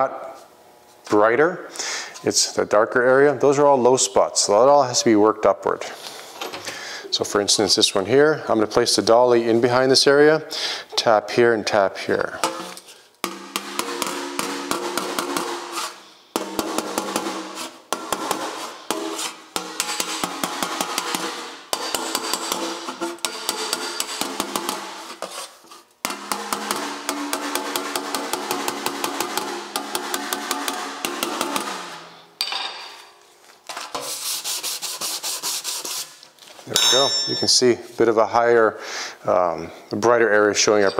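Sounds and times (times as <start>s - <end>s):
hammer tapping ringing sheet metal: 12.4s - 25.1s, 26.0s - 32.7s, 36.7s - 37.8s.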